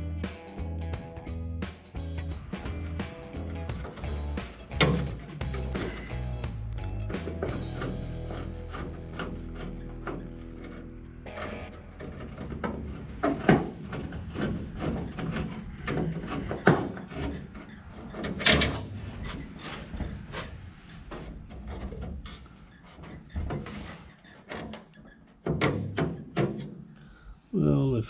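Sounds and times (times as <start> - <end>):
taps and knocks on sheet metal: 3.8 - 6.2, 7.2 - 19.4, 24.5 - 26.8.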